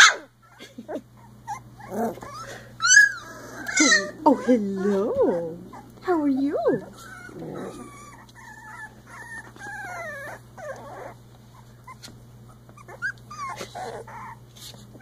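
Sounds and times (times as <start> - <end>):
puppies whining: 0.0 - 15.0.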